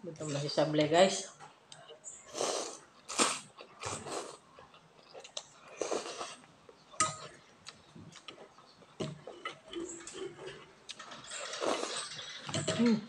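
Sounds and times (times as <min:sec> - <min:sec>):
chewing: 0:01.7 - 0:12.5
person slurping noodles: 0:02.3 - 0:04.4, 0:05.7 - 0:06.4.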